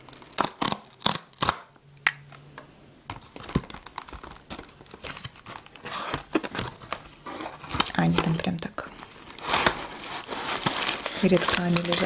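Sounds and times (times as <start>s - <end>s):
cardboard scratches and crinkles: 3.2s - 8.4s, 9.2s - 12.0s
cardboard box tearing: 4.6s - 8.4s, 9.3s - 12.0s.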